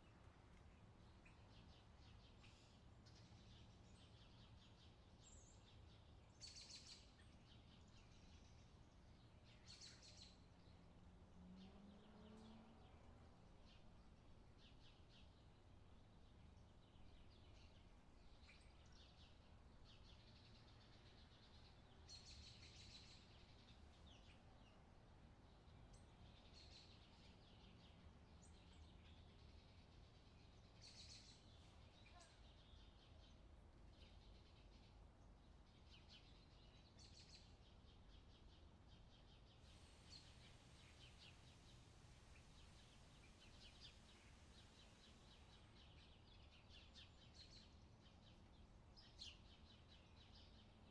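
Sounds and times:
small birds chirping: 0:00.0 - 0:50.9
low steady noise: 0:12.6 - 0:50.9.

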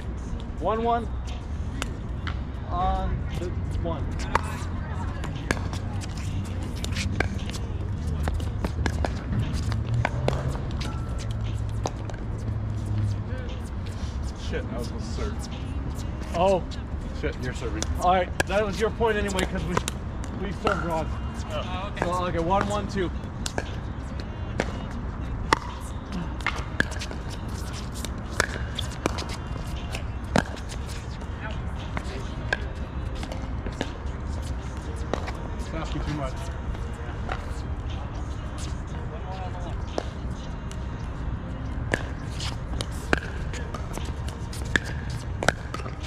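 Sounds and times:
paddles hitting pickleball: 0:25.5 - 0:31.0, 0:41.9 - 0:46.0.

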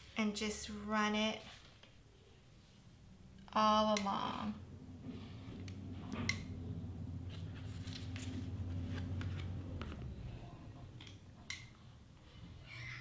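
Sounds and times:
steady low hum: 0:02.0 - 0:12.6
paper rustling: 0:07.3 - 0:10.1.

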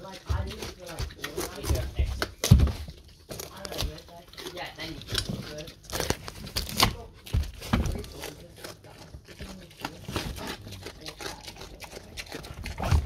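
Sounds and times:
crinkling plastic wrappers: 0:00.0 - 0:13.0
pig chewing and crunching: 0:00.0 - 0:13.0.

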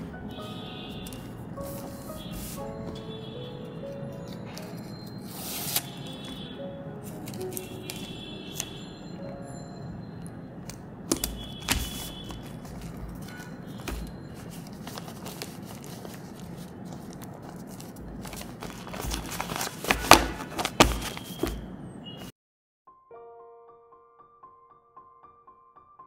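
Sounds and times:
paper rustling: 0:01.0 - 0:03.0, 0:04.2 - 0:06.4, 0:07.0 - 0:08.7, 0:11.1 - 0:21.7.

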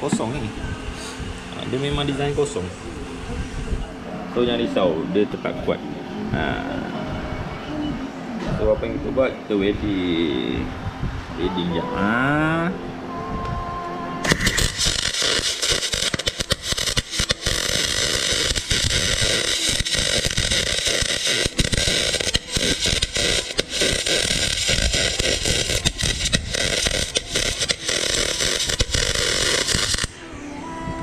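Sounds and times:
arc welding crackling hiss: 0:14.2 - 0:30.2.

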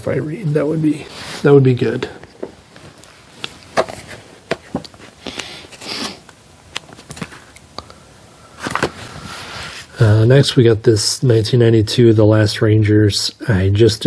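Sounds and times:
book knocking: 0:03.8 - 0:04.9.

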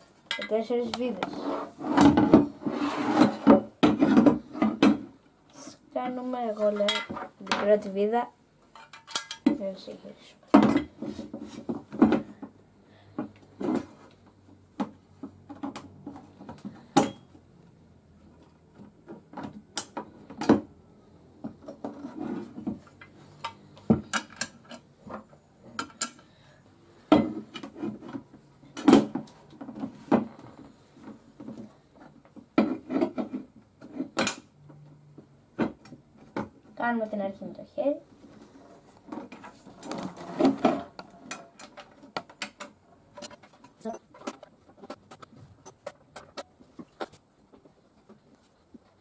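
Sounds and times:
plastic chair parts clicking: 0:18.7 - 0:20.7, 0:21.5 - 0:26.3, 0:39.2 - 0:47.2.

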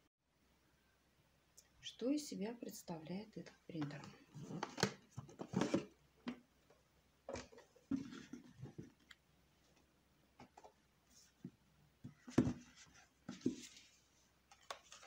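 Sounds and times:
cardboard scraping and rustling: 0:12.2 - 0:15.0.

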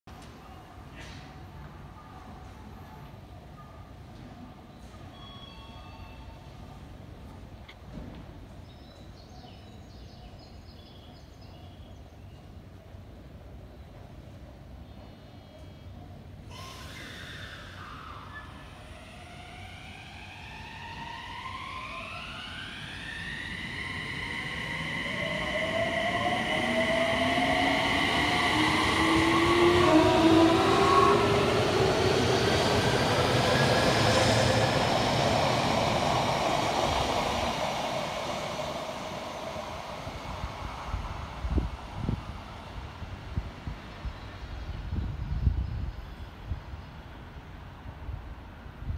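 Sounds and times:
electric train motors whining: 0:16.6 - 0:42.2.

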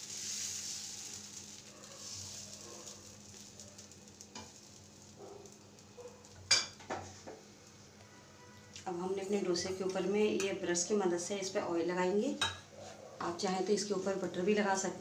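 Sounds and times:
batter sizzling on a hot pan: 0:00.0 - 0:08.4.

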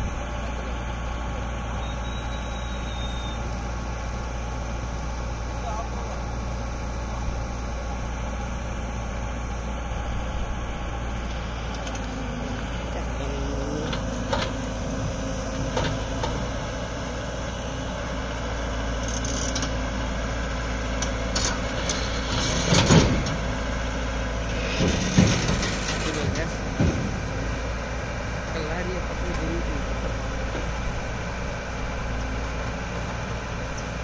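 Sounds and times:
diesel engine running: 0:00.0 - 0:34.0
steel tracks clanking: 0:21.3 - 0:23.5, 0:24.4 - 0:30.8.

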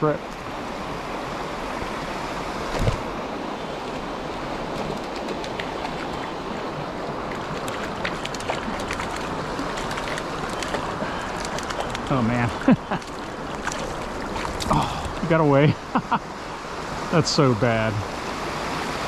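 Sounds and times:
creek water running over rocks: 0:02.7 - 0:18.5
fish splashing at surface: 0:07.3 - 0:15.1.

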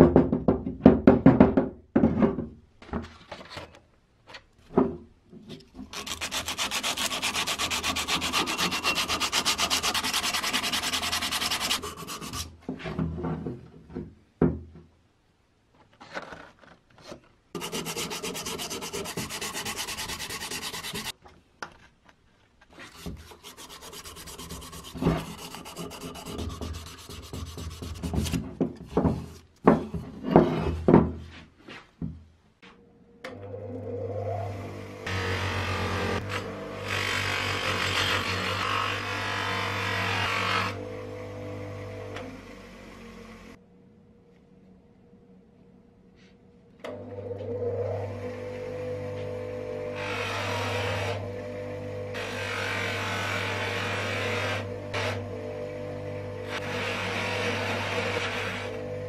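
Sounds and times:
sandpaper rubbing metal: 0:05.9 - 0:12.5, 0:17.6 - 0:21.1, 0:22.8 - 0:28.4.

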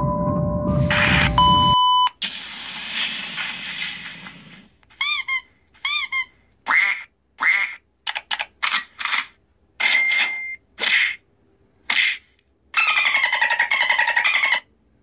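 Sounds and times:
squeaky duck toy squeaks: 0:05.0 - 0:07.7, 0:12.8 - 0:14.7.

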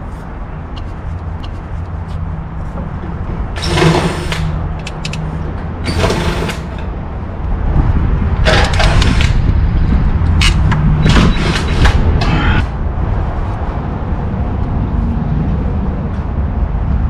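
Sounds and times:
hand tools scraping and clicking: 0:00.0 - 0:02.9
steady low hum: 0:00.0 - 0:17.0.

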